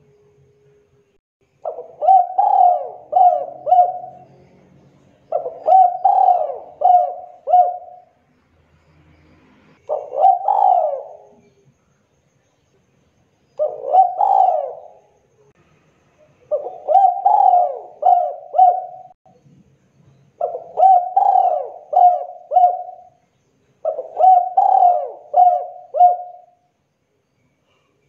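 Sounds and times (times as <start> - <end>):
dove cooing: 1.6 - 4.4, 5.3 - 8.2, 9.8 - 11.5, 13.6 - 15.1, 16.5 - 19.2, 20.4 - 23.2, 23.8 - 26.6.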